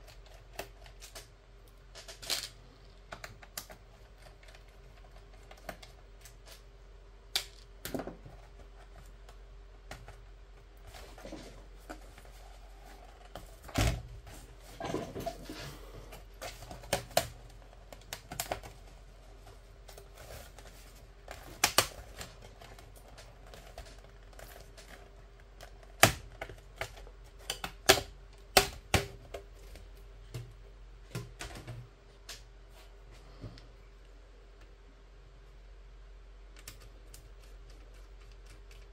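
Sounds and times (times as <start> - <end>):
plastic clips snapping: 21.4 - 22.3.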